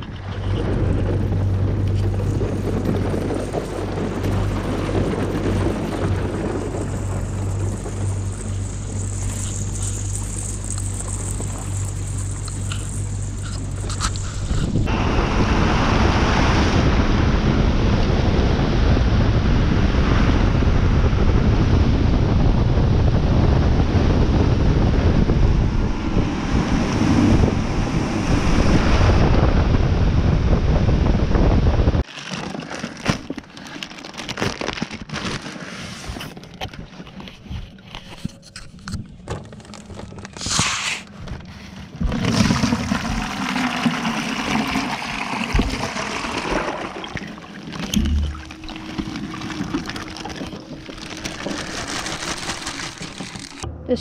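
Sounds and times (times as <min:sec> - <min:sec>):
water lapping against boat: 0:00.0 - 0:17.1, 0:41.2 - 0:53.6
boat engine running: 0:00.0 - 0:32.0, 0:41.1 - 0:54.0
wind on microphone: 0:00.0 - 0:32.0.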